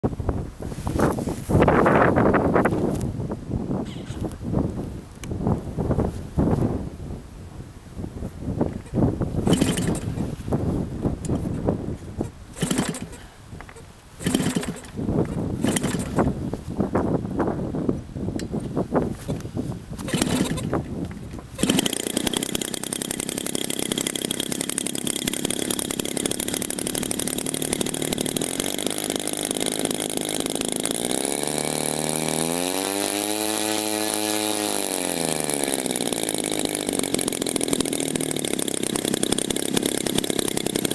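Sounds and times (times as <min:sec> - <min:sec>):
model aircraft engine running: 0:09.4 - 0:10.3, 0:12.6 - 0:13.4, 0:14.2 - 0:16.4, 0:20.0 - 0:20.9, 0:21.5 - 0:40.9.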